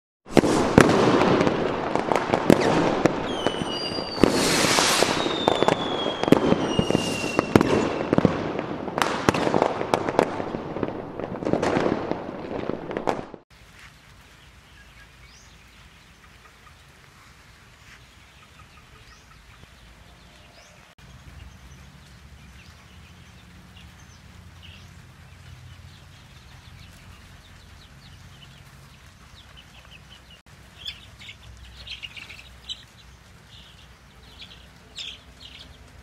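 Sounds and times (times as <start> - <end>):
chickens chirping and clucking: 14.0 - 36.0.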